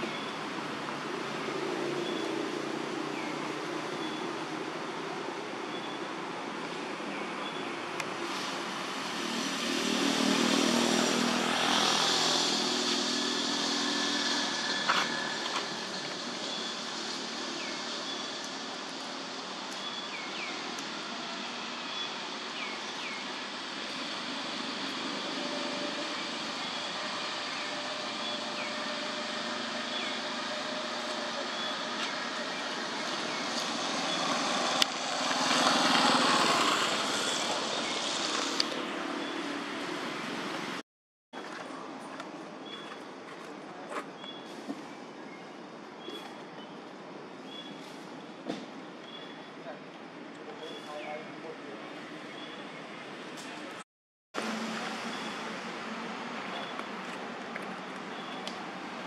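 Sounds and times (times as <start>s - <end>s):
engine noise: 0.0s - 40.8s, 54.4s - 59.0s.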